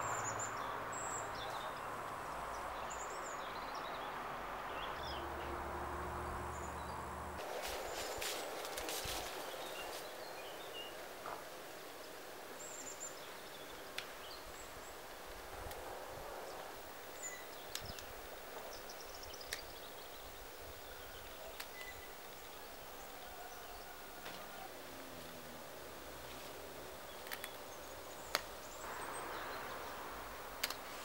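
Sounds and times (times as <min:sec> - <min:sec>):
leaves rustling: 0:04.8 - 0:31.0
faint bird chirps: 0:17.1 - 0:24.9.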